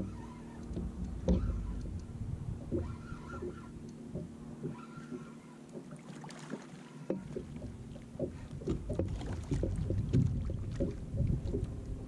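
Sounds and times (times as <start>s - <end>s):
fish thrashing and splashing: 5.8s - 11.7s.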